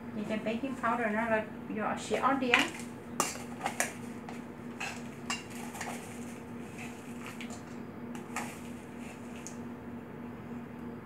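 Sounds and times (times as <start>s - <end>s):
metal spoon scraping a steel bowl: 4.8s - 8.7s.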